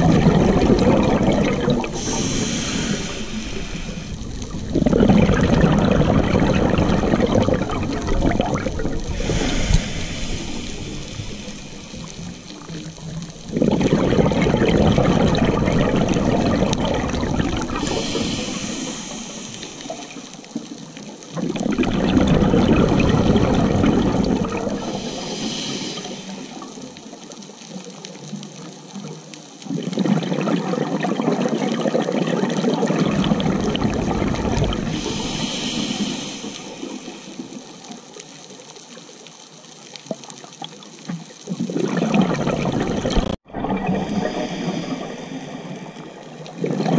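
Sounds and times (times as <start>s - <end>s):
exhaled bubbles rushing underwater: 0.0s - 38.6s, 40.0s - 46.9s
regulator inhalation hiss: 1.8s - 4.6s, 9.1s - 13.2s, 17.6s - 20.6s, 24.7s - 27.1s, 34.8s - 37.9s, 44.1s - 46.5s.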